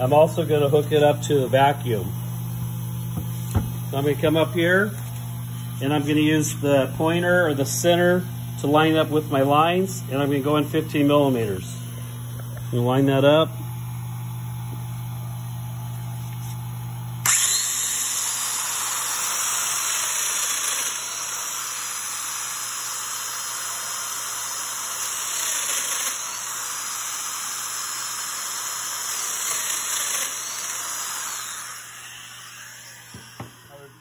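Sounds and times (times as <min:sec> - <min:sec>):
power joiner whine: 0:00.0 - 0:34.0.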